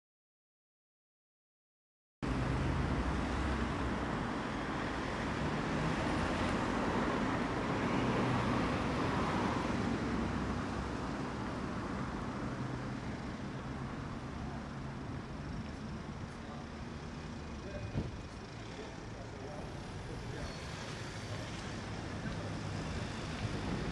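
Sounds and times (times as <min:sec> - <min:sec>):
road traffic rumble: 0:02.2 - 0:23.9
car passing by: 0:02.3 - 0:12.6, 0:17.9 - 0:23.9.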